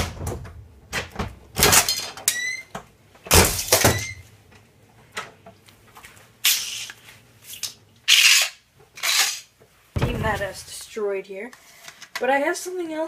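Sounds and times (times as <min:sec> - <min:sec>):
door slamming on plastic case: 0:10.0 - 0:10.6.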